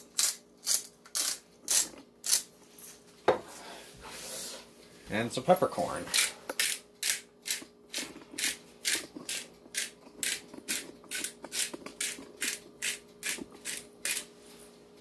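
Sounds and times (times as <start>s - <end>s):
pepper grinder crunching peppercorns: 0.0s - 2.5s, 6.1s - 14.3s.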